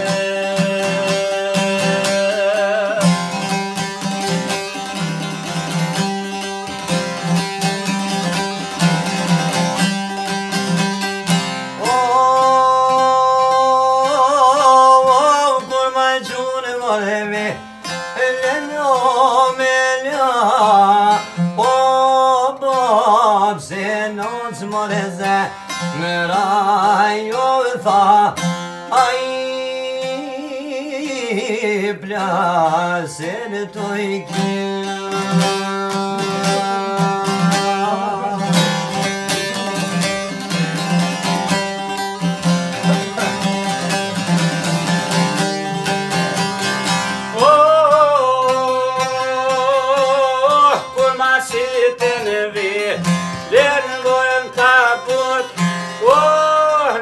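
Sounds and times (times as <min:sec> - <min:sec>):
folk lutes plucked: 0:00.0 - 0:57.0
man singing folk melody: 0:00.0 - 0:57.0.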